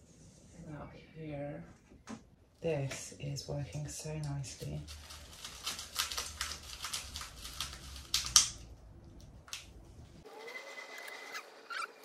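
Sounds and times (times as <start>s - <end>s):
plastic plant pot crinkling: 4.5s - 8.6s.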